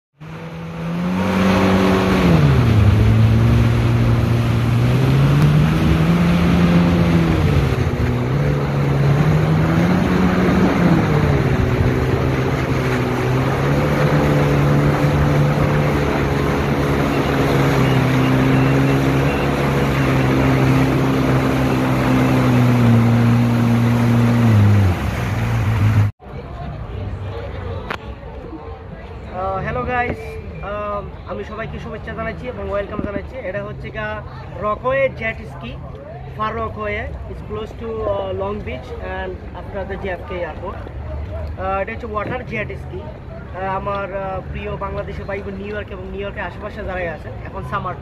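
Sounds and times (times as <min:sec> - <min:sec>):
jet ski engine running: 0:00.2 - 0:26.1
rushing water and wind: 0:00.2 - 0:26.2.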